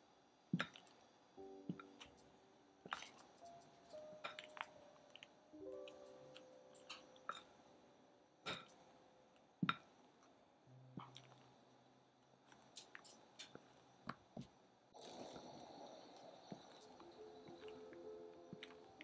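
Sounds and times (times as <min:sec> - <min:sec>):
soft wet squelches of cream: 0:00.6 - 0:02.2, 0:11.0 - 0:11.8.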